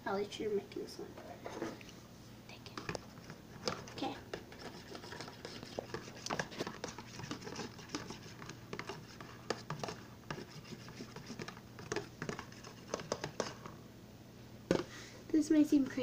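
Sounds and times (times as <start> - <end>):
knife stirring thick mixture: 2.7 - 13.8.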